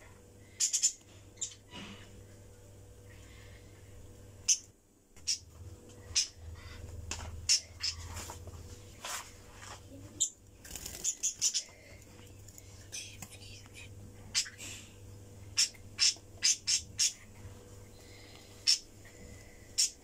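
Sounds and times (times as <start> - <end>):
budgerigars chirping: 0.6 - 1.7, 4.4 - 4.6, 5.2 - 5.4, 6.1 - 6.8, 7.5 - 8.1, 11.0 - 11.7, 14.3 - 14.6, 15.6 - 17.2, 18.6 - 18.8, 19.8 - 20.0.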